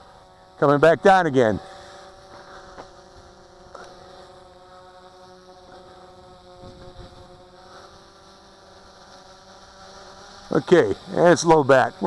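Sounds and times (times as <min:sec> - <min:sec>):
drone propellers humming: 0:00.0 - 0:12.0.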